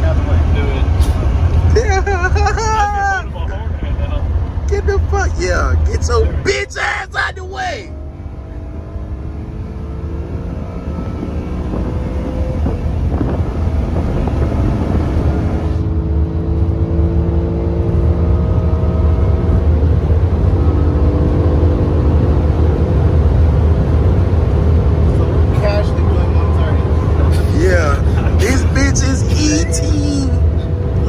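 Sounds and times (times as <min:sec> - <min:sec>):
low road rumble: 0:00.0 - 0:31.0
car engine accelerating: 0:07.8 - 0:31.0.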